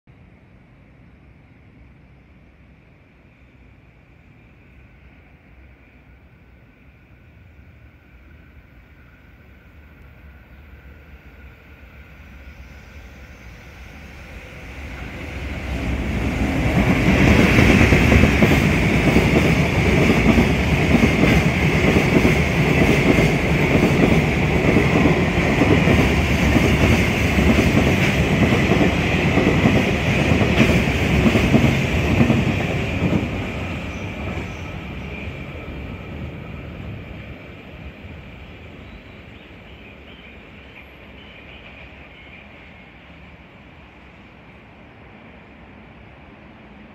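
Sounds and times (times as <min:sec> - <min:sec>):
train wheels clickety-clack: 0:14.9 - 0:35.7.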